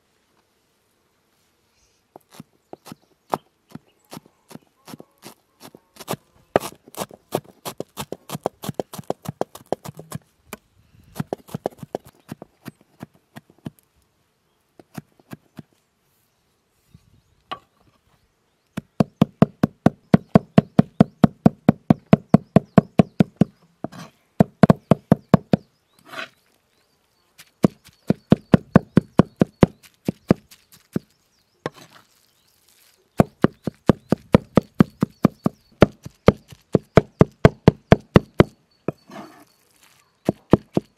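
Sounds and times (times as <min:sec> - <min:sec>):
cleaver chopping on wooden board: 0:06.0 - 0:10.2, 0:18.8 - 0:26.3, 0:27.6 - 0:31.0, 0:33.2 - 0:39.1, 0:40.3 - 0:40.9.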